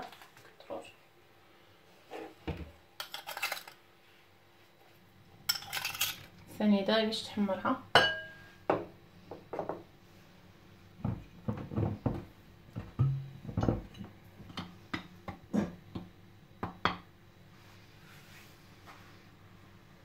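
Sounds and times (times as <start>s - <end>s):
metal spoon clinking on ceramic bowl: 8.0s - 8.4s.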